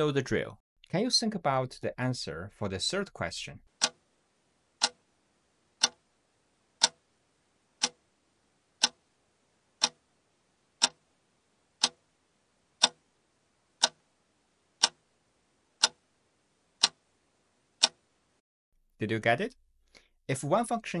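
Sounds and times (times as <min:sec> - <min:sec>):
clock ticking: 0:03.7 - 0:04.0, 0:04.8 - 0:05.0, 0:05.8 - 0:06.0, 0:06.8 - 0:07.0, 0:07.8 - 0:08.0, 0:08.8 - 0:09.1, 0:09.8 - 0:10.0, 0:10.8 - 0:11.0, 0:11.8 - 0:12.0, 0:12.8 - 0:13.0, 0:13.8 - 0:14.0, 0:14.8 - 0:15.0, 0:15.8 - 0:16.0, 0:16.8 - 0:17.1, 0:17.8 - 0:18.0.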